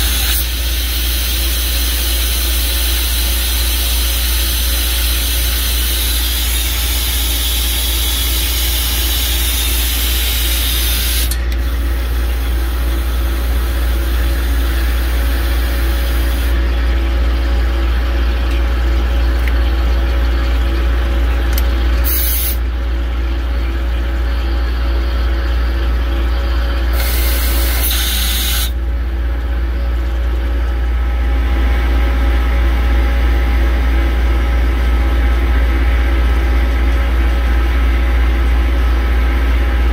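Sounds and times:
machine low hum: 0:00.0 - 0:39.9
water flushing hiss: 0:26.9 - 0:28.7.

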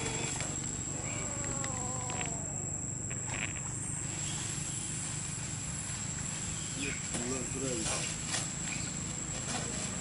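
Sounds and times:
high-pitched insect drone: 0:00.0 - 0:10.0
faint falling cry: 0:01.0 - 0:02.7
rustles in dry leaf litter: 0:03.3 - 0:10.0.

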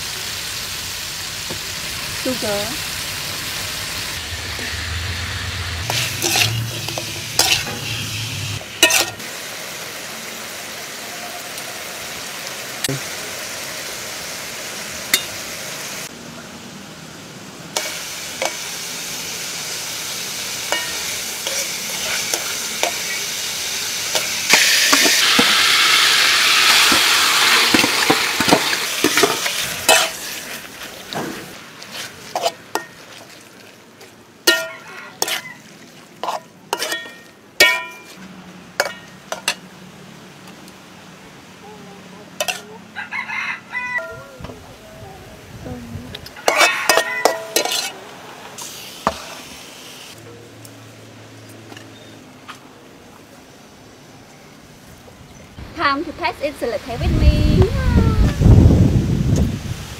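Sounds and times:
oily sizzle in a wok: 0:00.0 - 0:52.5, 0:53.2 - 0:59.9
metal spatula scraping a pan: 0:04.3 - 0:09.2, 0:20.7 - 0:23.2, 0:27.7 - 0:30.6, 0:31.2 - 0:33.1, 0:34.5 - 0:35.5, 0:36.2 - 0:38.2, 0:42.4 - 0:42.7, 0:46.4 - 0:48.0.

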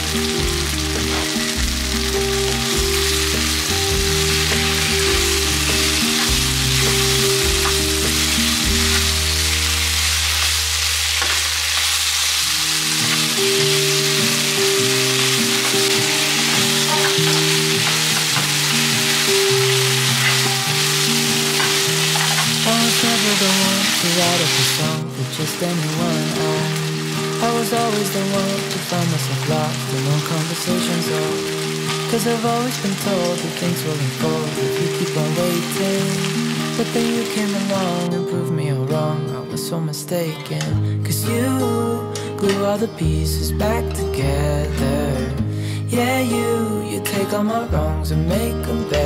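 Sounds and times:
food sizzling in a frying pan: 0:00.0 - 0:38.2
background music: 0:00.0 - 0:49.0.

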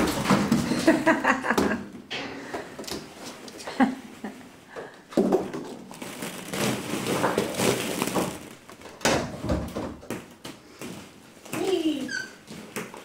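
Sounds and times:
plastic balls rustling and clattering: 0:05.1 - 0:13.0.

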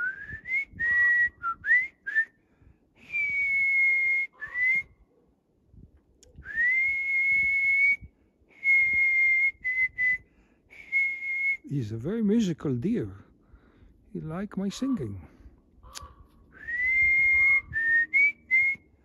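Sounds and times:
person whistling a tune: 0:00.0 - 0:02.3, 0:03.0 - 0:04.9, 0:06.4 - 0:10.2, 0:10.8 - 0:11.7, 0:16.6 - 0:18.9.

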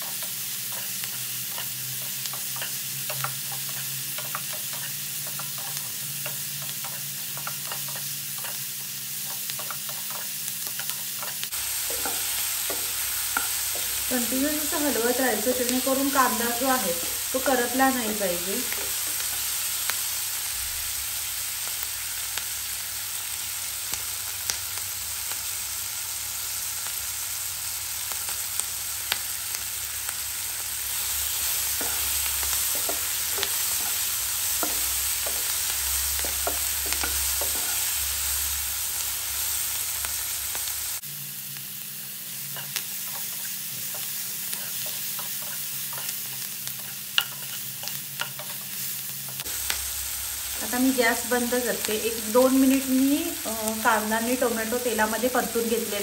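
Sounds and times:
vegetables sizzling in hot oil: 0:00.0 - 0:56.0
spatula scraping a pan: 0:42.6 - 0:48.8.

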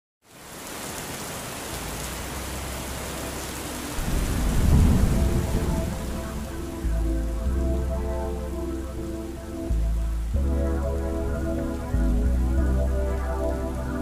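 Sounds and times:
heavy rain: 0:00.2 - 0:14.0
thunder rolling: 0:04.0 - 0:08.1.

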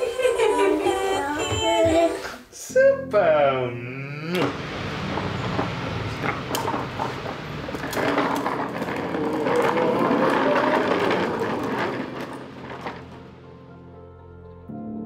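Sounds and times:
plastic toy wheels rolling on paving: 0:04.4 - 0:13.7.

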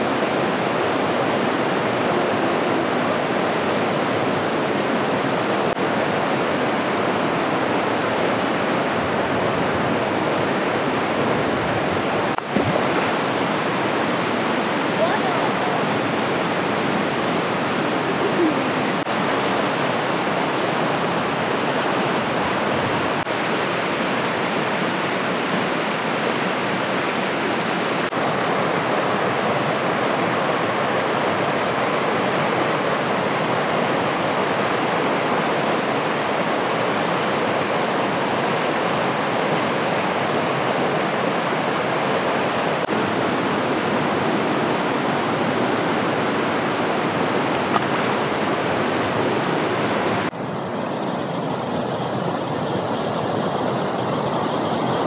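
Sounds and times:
stream rushing over rocks: 0:00.0 - 0:55.0.

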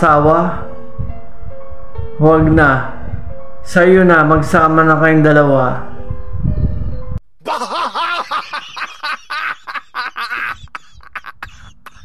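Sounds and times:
laughter bursts: 0:07.4 - 0:12.0.

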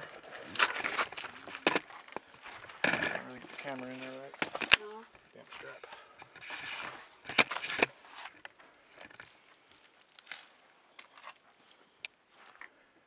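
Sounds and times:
camera handling rustling: 0:00.4 - 0:04.9, 0:05.6 - 0:11.4.

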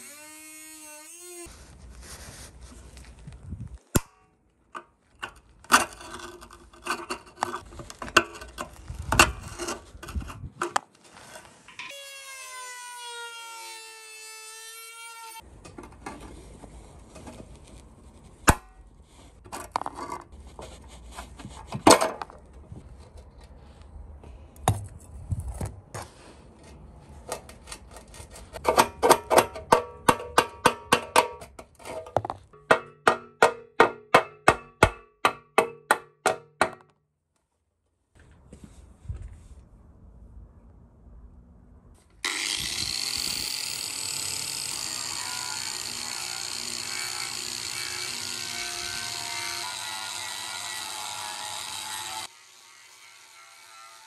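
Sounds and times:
screwdriver scraping metal: 0:04.8 - 0:12.0.

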